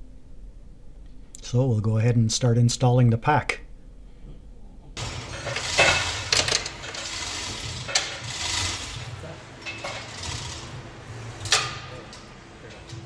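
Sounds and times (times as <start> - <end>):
chain clanks: 5.0 - 13.0
hoist mechanical hum: 5.0 - 13.0.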